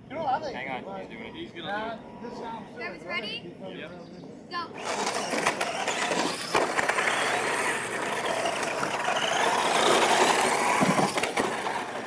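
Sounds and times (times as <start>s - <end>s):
rc truck motors at full throttle: 4.7s - 12.0s
tyres churning on dirt: 4.8s - 12.0s
trucks landing with knocks: 8.2s - 12.0s.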